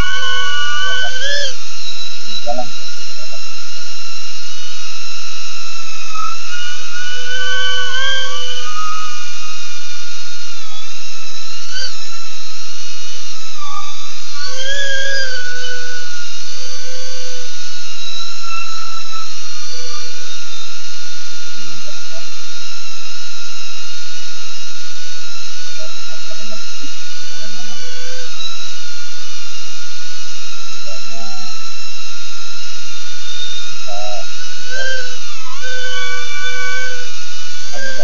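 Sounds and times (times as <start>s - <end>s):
quadcopter motors whining: 0.0s - 1.6s, 6.0s - 11.0s.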